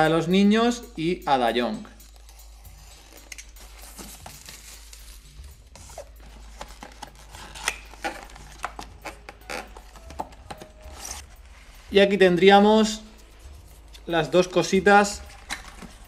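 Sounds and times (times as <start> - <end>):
cardboard scraping: 5.8 - 11.8.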